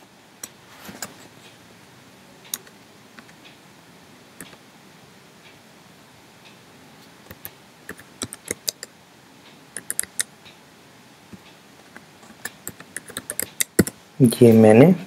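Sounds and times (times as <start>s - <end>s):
computer keyboard clicks: 7.3s - 8.9s, 9.8s - 10.3s, 12.2s - 14.0s.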